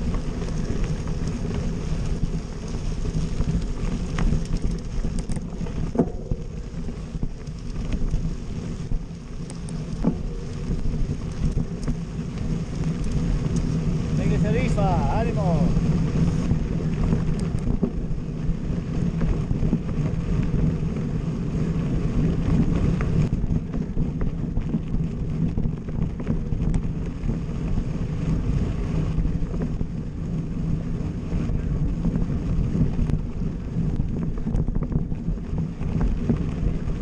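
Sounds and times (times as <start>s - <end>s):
tyres rolling on gravel: 0.0s - 37.0s
wind buffeting microphone: 0.0s - 37.0s
light clicks and rattles: 0.1s - 15.7s, 16.9s - 18.0s.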